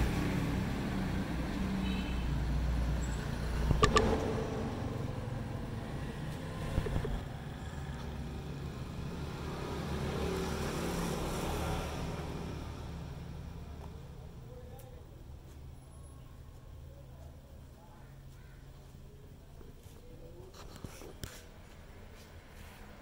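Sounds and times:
engine running at low pitch: 0:02.6 - 0:09.6
sharp clicks: 0:03.6 - 0:04.3.

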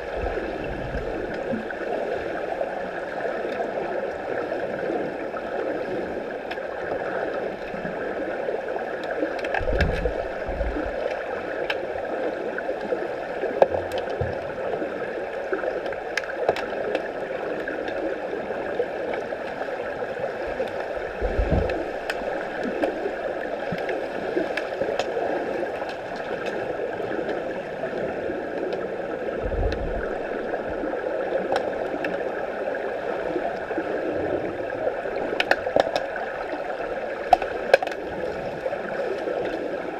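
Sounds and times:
muffled underwater rushing: 0:00.0 - 0:39.9
sharp underwater clicks: 0:09.0 - 0:11.9, 0:15.7 - 0:18.0, 0:20.6 - 0:28.9, 0:31.4 - 0:32.2, 0:35.3 - 0:38.5
low underwater thumps: 0:09.6 - 0:11.0, 0:21.1 - 0:22.6.

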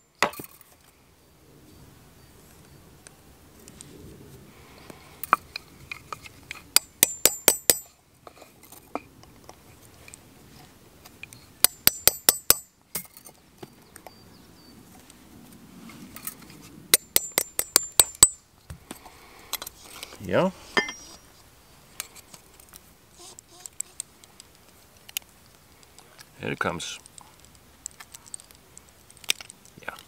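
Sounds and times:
hammer striking chisel on metal: 0:06.8 - 0:07.9, 0:11.6 - 0:12.7, 0:16.9 - 0:18.4, 0:20.8 - 0:21.2.

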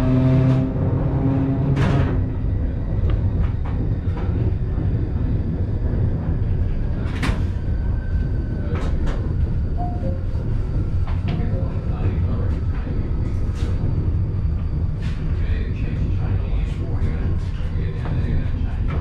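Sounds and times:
train rumble: 0:00.0 - 0:19.0
train clunks: 0:01.6 - 0:06.0, 0:06.6 - 0:07.8.

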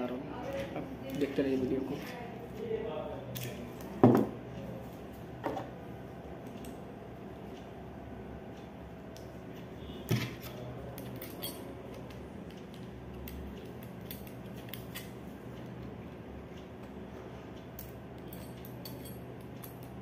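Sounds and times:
small parts clicking and tapping: 0:10.0 - 0:16.0, 0:17.6 - 0:20.0.

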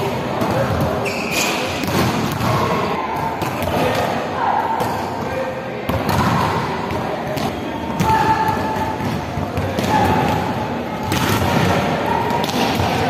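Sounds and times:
volleyballs hit and thudding: 0:01.7 - 0:04.2, 0:05.9 - 0:13.0.

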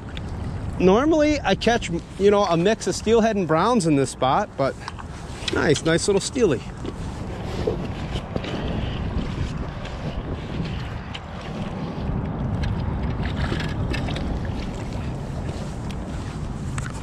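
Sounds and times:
wind rumbling on microphone: 0:00.0 - 0:17.0
waves lapping against rocks: 0:03.5 - 0:17.0.

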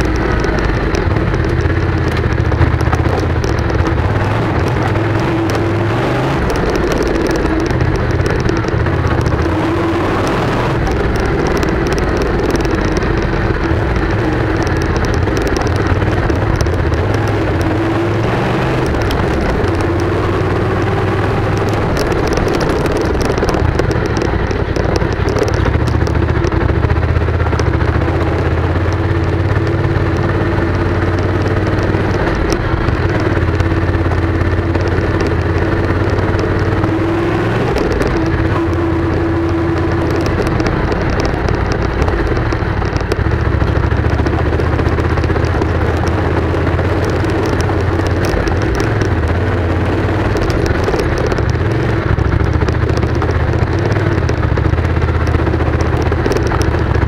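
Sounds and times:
motorcycle engine running: 0:00.0 - 0:57.0
rattles and clicks from bumps: 0:00.0 - 0:57.0.

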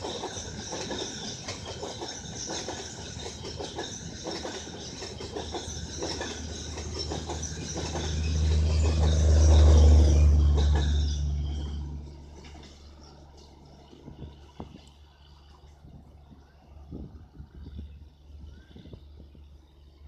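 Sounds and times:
train wheels clicking over rail joints: 0:00.0 - 0:15.3
deep train hum: 0:00.0 - 0:20.0
train running noise: 0:00.0 - 0:20.0.

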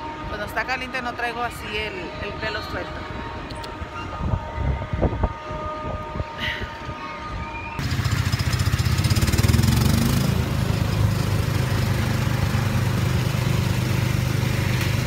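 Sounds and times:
small engine running: 0:07.8 - 0:15.0.

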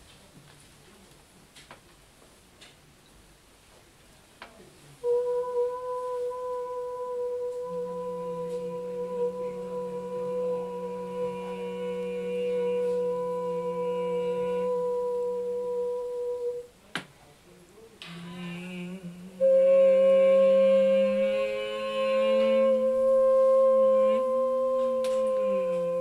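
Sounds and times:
singers humming long notes: 0:05.0 - 0:16.8, 0:18.0 - 0:26.0.

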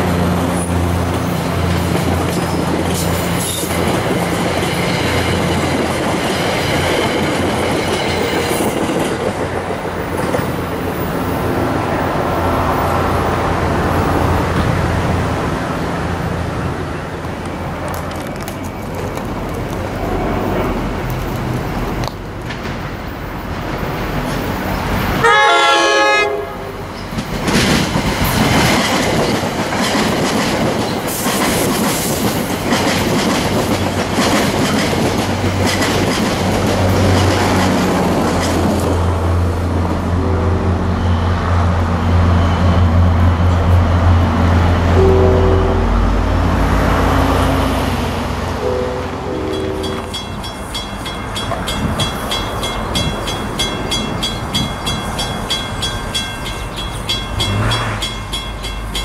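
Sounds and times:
train wheels clattering on rails: 0:00.4 - 0:11.6, 0:17.2 - 0:25.2, 0:26.8 - 0:40.0, 0:49.5 - 0:59.0
train horn blast: 0:25.2 - 0:26.8, 0:44.9 - 0:46.4, 0:48.6 - 0:50.2
locomotive engine drone: 0:35.2 - 0:59.0.

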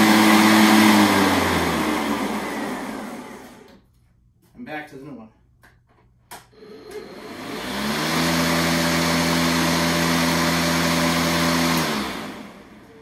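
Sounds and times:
electric lawn mower humming: 0:00.0 - 0:03.7, 0:06.6 - 0:13.0.

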